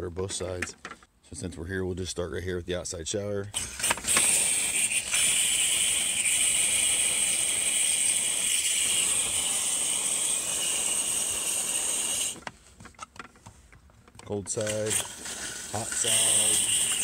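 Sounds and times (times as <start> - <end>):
compressed air and water spray hissing: 3.6 - 12.4, 14.6 - 17.0.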